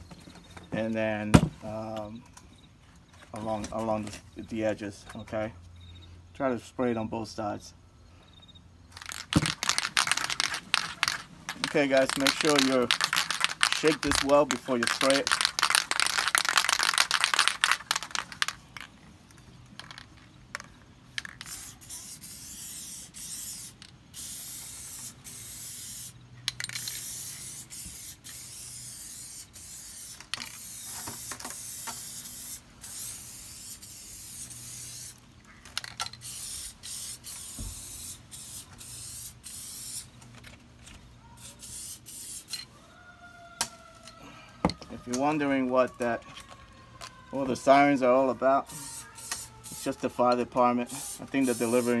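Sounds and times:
aerosol can spraying: 0:09.0 - 0:18.6, 0:21.2 - 0:35.2, 0:36.2 - 0:40.1, 0:41.4 - 0:42.5, 0:48.7 - 0:50.2, 0:50.9 - 0:52.0.

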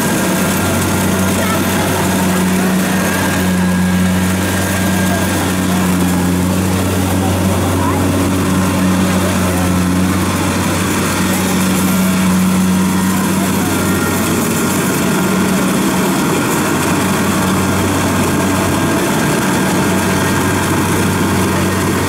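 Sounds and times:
combine harvester diesel engine: 0:00.0 - 0:22.0.

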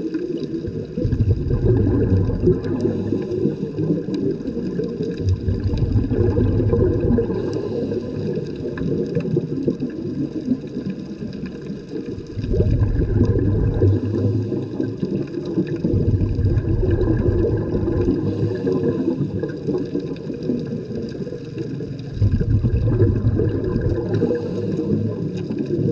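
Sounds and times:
underwater water rumble: 0:00.0 - 0:25.9
faint clicks: 0:07.2 - 0:13.4.

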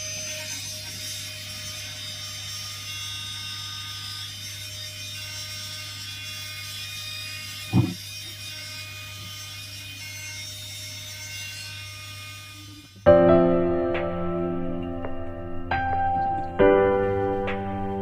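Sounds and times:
rotary tool whining: 0:00.0 - 0:13.1.

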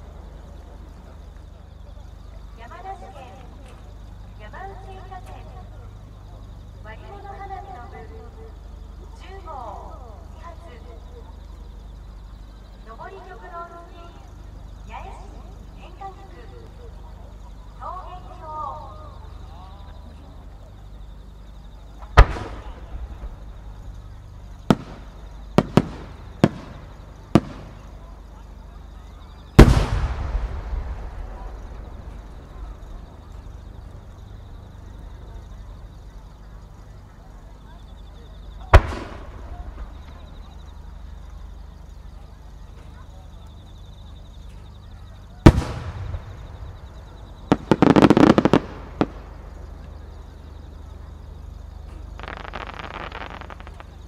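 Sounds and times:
sharp firework bangs: 0:22.1 - 0:23.4, 0:24.6 - 0:27.9, 0:29.6 - 0:32.9, 0:38.7 - 0:40.2, 0:45.4 - 0:49.6, 0:52.1 - 0:54.0
firework boom echoing: 0:29.6 - 0:32.9, 0:38.7 - 0:40.2, 0:45.4 - 0:49.3.

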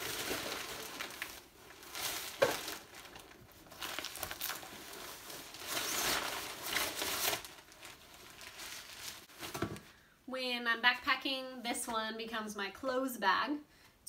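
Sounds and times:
nylon sack rustling: 0:00.0 - 0:09.8.

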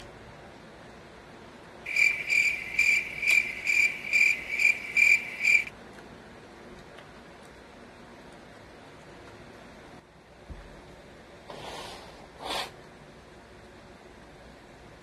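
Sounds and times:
insect chirping: 0:01.9 - 0:05.7.

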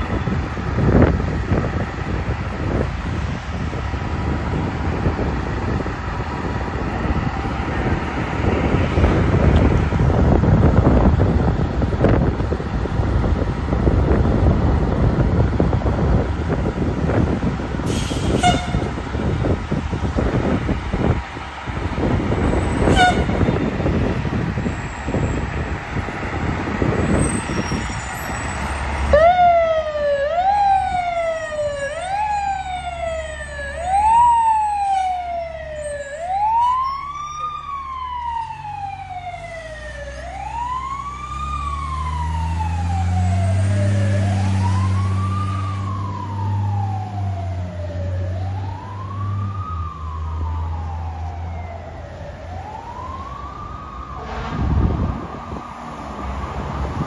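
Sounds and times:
fire truck siren wailing: 0:00.0 - 0:57.0
truck engine: 0:00.0 - 0:57.0.

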